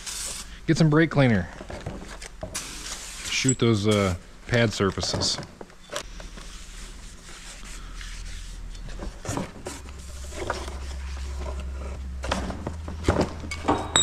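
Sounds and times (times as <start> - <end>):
knocks and rustles of tools: 1.5 - 2.7, 3.9 - 6.4, 8.7 - 14.0.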